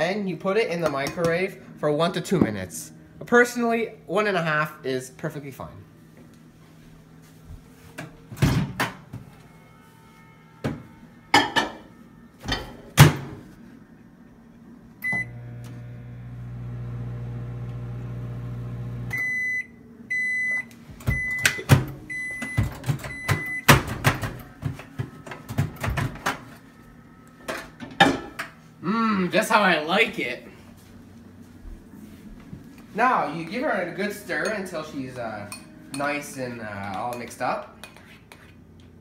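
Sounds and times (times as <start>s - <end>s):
microwave oven humming: 7.1s - 29.9s.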